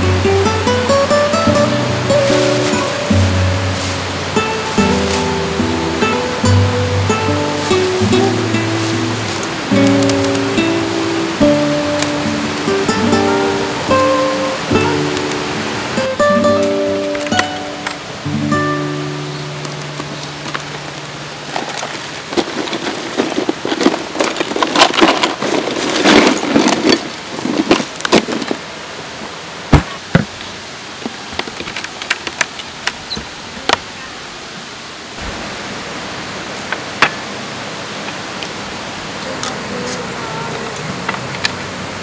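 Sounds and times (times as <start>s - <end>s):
bags and cans rustling: 0.0s - 15.2s, 19.5s - 28.8s
background hiss: 0.0s - 42.0s.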